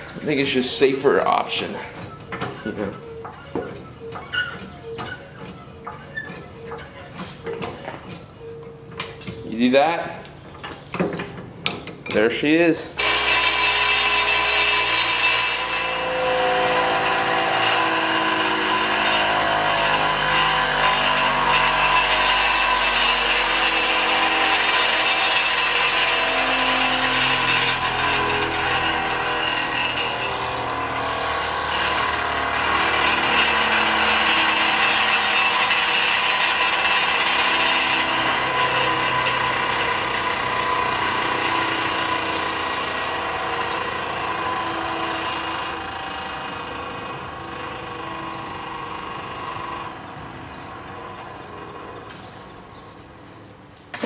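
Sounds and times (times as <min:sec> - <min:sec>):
bench grinder grinding blade: 0:13.0 - 0:52.4.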